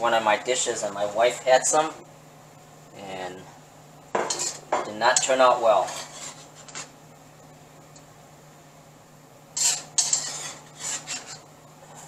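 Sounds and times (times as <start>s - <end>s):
metal tongs scraping steel wok: 4.3s - 4.6s, 5.2s - 6.8s, 9.6s - 11.5s.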